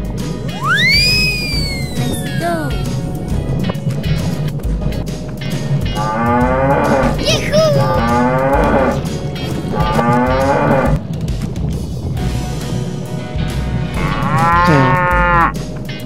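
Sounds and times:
background music: 0.0s - 16.0s
high rising squeak: 0.5s - 3.2s
cattle mooing: 14.0s - 15.5s.

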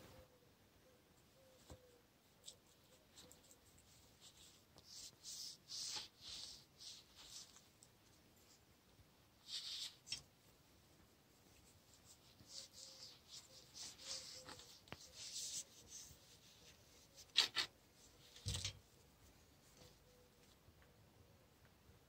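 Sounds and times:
cloth wiping a blade: 12.0s - 17.7s.

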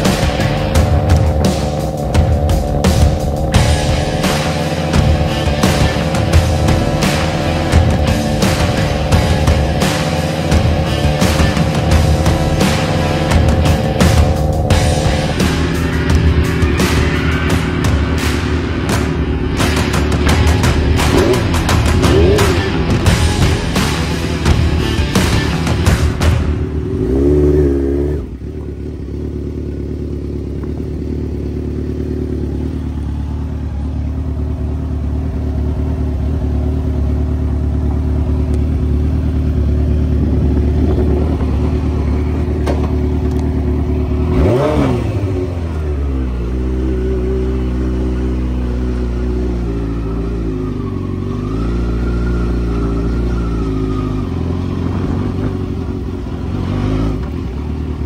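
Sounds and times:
motorcycle engine idling: 0.0s - 58.0s.

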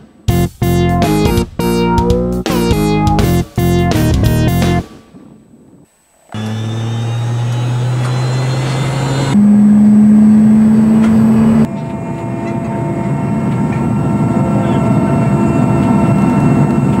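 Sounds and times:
helicopter cabin engine whine: 6.3s - 17.0s.

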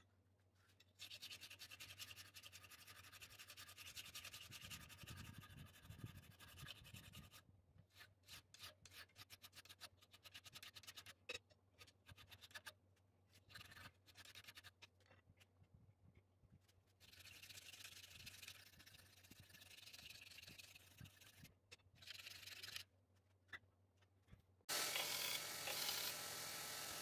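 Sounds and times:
file rasping on metal: 24.7s - 27.0s.

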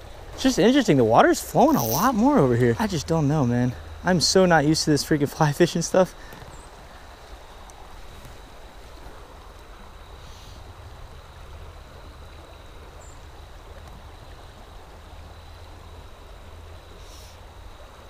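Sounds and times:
creek water flowing: 0.0s - 18.0s.

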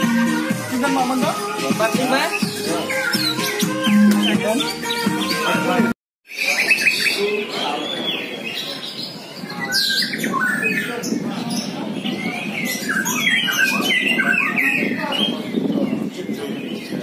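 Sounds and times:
songbirds chirping and whistling: 0.0s - 17.0s
crowd murmur: 5.0s - 17.0s.

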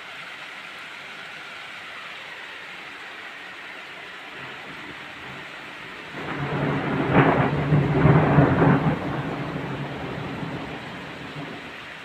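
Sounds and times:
rain falling: 0.0s - 12.0s
thunder rolling: 6.1s - 11.7s.

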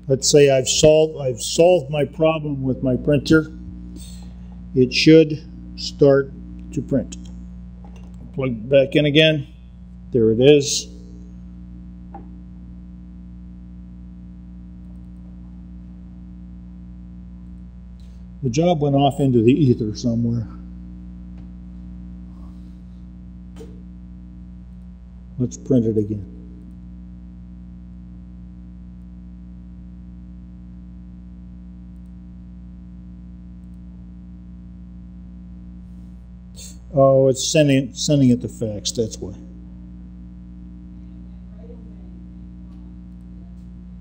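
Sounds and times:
low electrical mains hum: 0.0s - 44.0s
faint click: 31.9s - 32.2s, 33.6s - 33.8s.

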